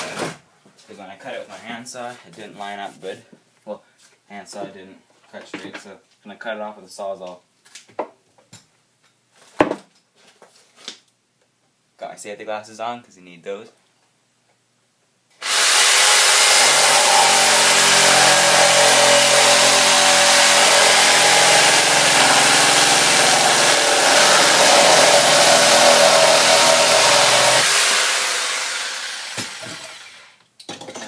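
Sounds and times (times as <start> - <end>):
reciprocating saw cutting log: 15.4 - 30.3.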